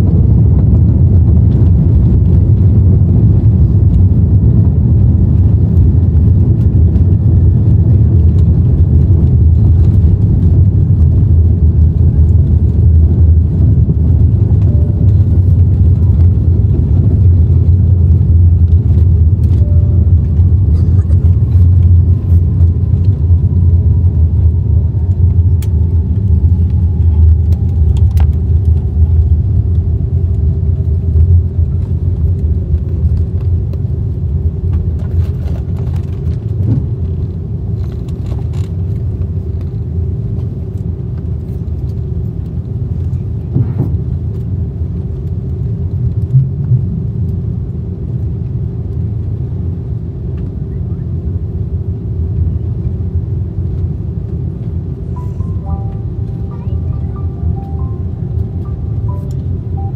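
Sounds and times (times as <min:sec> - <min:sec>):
aircraft cabin rumble: 0:00.0 - 0:59.9
jet engine whine falling: 0:00.0 - 0:59.9.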